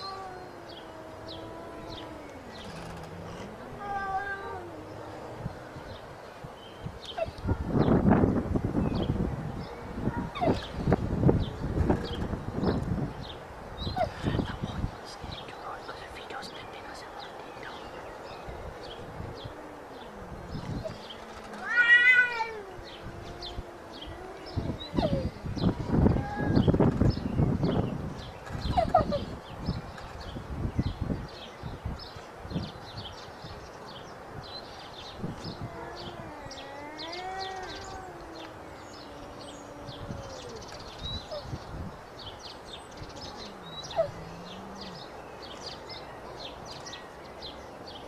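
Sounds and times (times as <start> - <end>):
cat growling moan: 0.0 - 6.0, 18.9 - 26.8, 35.4 - 41.6, 43.0 - 45.1
birds chirping: 0.0 - 48.0
cat yowl: 3.7 - 4.9, 21.6 - 25.4, 35.6 - 40.7.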